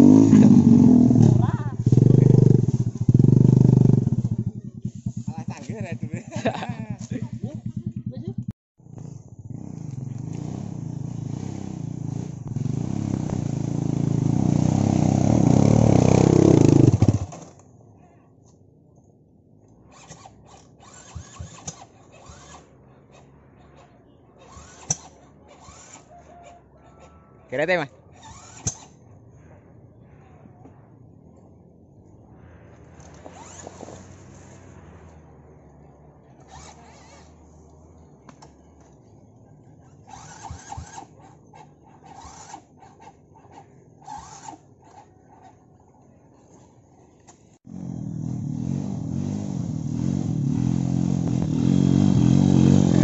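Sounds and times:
mechanical clicks and scrapes: 0:19.7 - 0:22.8, 0:23.8 - 0:26.5, 0:28.1 - 0:29.0, 0:32.8 - 0:35.1, 0:36.4 - 0:37.8, 0:39.8 - 0:45.6
dirt bike kick-start clatter: 0:19.8 - 0:22.7, 0:28.2 - 0:29.0, 0:33.0 - 0:34.2, 0:40.0 - 0:41.2.

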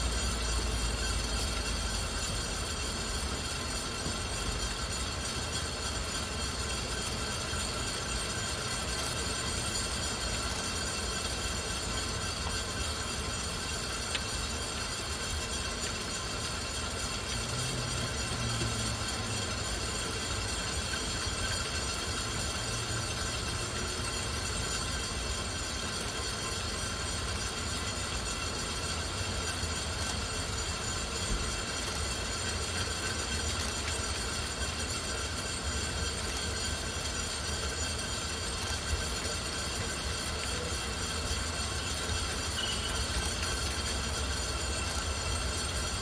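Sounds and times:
faint ticks: 0:13.8 - 0:14.5.

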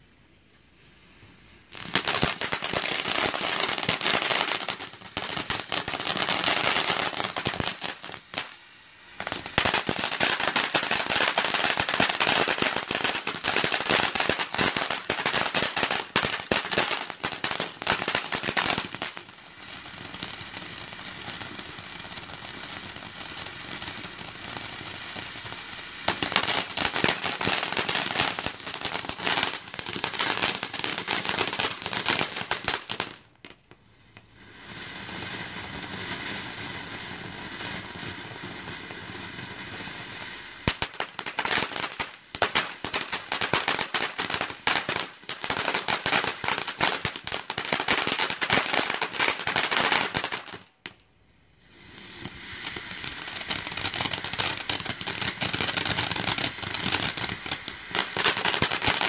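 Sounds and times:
firework fountain hissing and crackling: 0:00.0 - 0:59.0.

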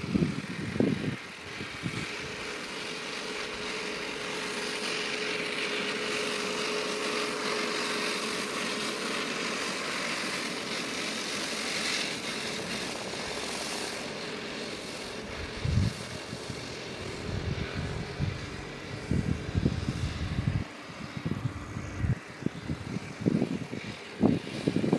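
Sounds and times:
wind buffeting microphone: 0:00.0 - 0:02.6, 0:15.2 - 0:24.9
steady outdoor hiss: 0:00.0 - 0:24.9.

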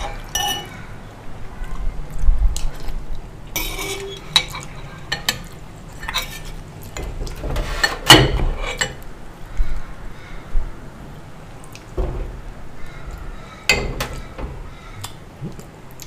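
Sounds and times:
spoon clatter: 0:00.0 - 0:00.7, 0:03.6 - 0:05.4
metal spoon scraping ceramic bowl: 0:03.6 - 0:05.3.

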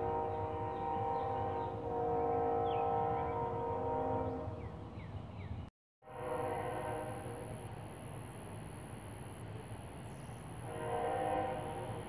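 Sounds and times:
locomotive horn blasts: 0:00.0 - 0:04.7, 0:06.0 - 0:07.6, 0:10.6 - 0:12.0
train rumbling: 0:00.0 - 0:12.0.

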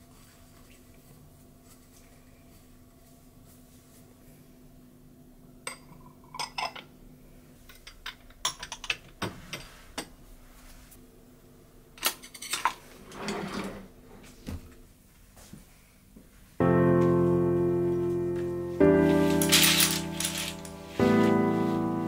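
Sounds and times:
glass dishes clinking: 0:05.7 - 0:06.8
cutlery rattling: 0:12.0 - 0:13.4, 0:19.3 - 0:20.8
drawer opening: 0:12.6 - 0:13.9, 0:19.1 - 0:20.8.

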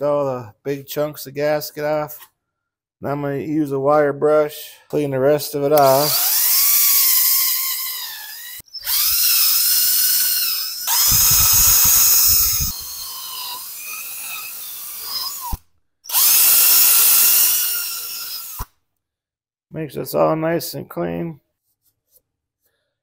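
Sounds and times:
drill spinning wire brush: 0:05.8 - 0:18.7.

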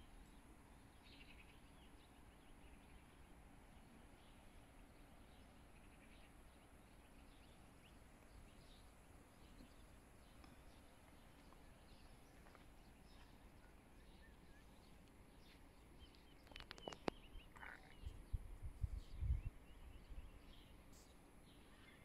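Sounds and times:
faint bird chirps: 0:00.0 - 0:22.0
sharp clicks: 0:16.4 - 0:17.7.

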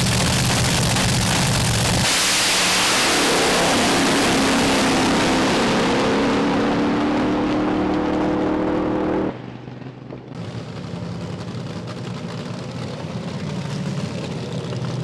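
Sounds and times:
dragster engine: 0:00.0 - 0:15.0.

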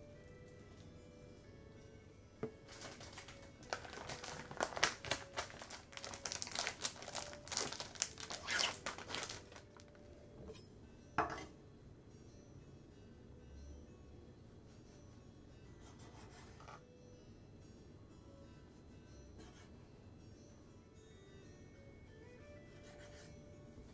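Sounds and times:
faint background music: 0:00.0 - 0:23.9
plastic bag crinkling: 0:02.6 - 0:10.0.

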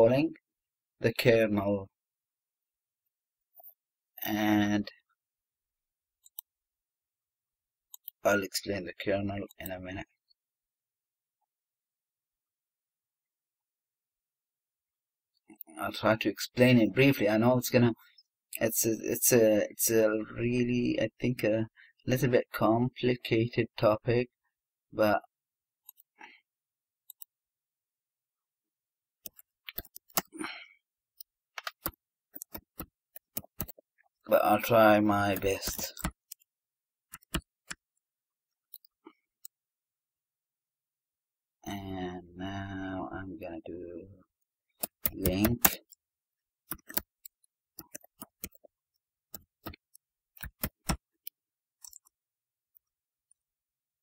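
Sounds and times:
computer keyboard typing: 0:29.3 - 0:30.3, 0:31.6 - 0:33.8, 0:37.1 - 0:37.8, 0:44.8 - 0:45.8, 0:46.7 - 0:48.7, 0:49.3 - 0:52.1.

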